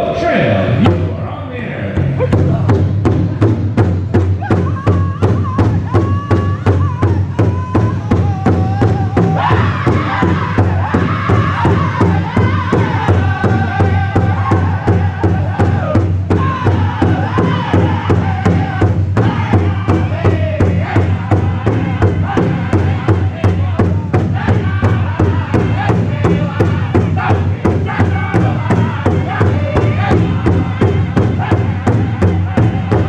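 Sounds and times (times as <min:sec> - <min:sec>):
large drum beating fast rhythm: 0:00.7 - 0:01.2, 0:01.8 - 0:33.0
group singing high-pitched chant: 0:04.4 - 0:33.0.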